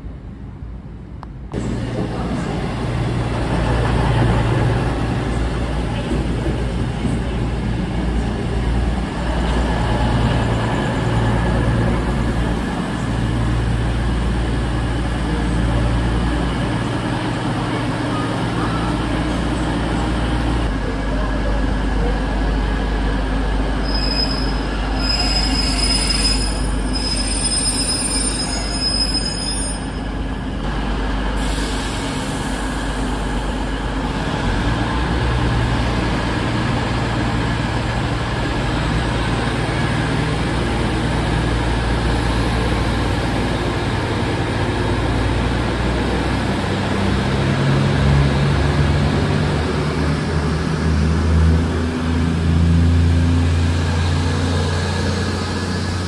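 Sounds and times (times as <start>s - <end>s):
diesel train rumbling: 0.0s - 56.0s
train wheels squealing: 23.8s - 30.1s.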